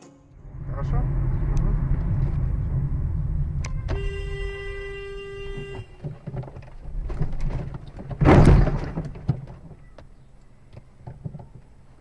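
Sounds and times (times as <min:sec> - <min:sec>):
car collision bang: 0:00.6 - 0:09.8
small clicks and knocks: 0:05.7 - 0:12.0.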